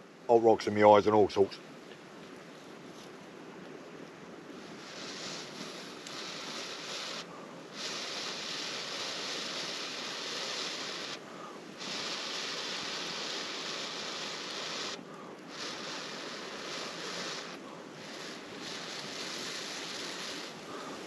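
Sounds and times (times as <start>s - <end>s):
rushing breath blowing on ember: 4.5s - 21.0s.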